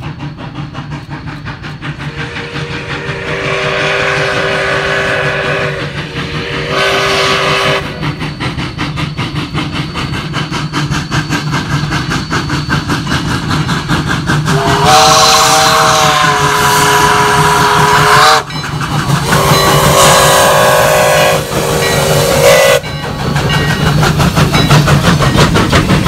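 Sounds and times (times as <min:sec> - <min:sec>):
steam locomotive chuffing: 0:00.0 - 0:26.0
two-note steam whistle: 0:01.9 - 0:13.1, 0:14.5 - 0:23.9.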